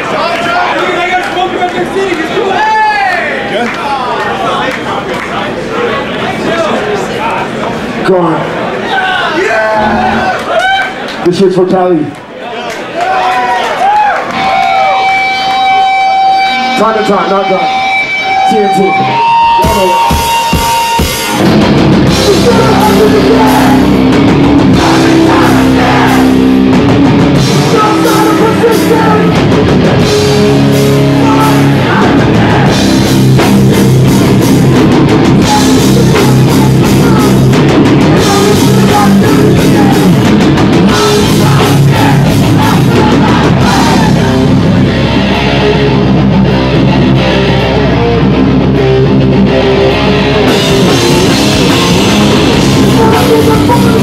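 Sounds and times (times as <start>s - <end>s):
hardcore band playing live: 9.6s - 10.5s, 14.3s - 54.0s.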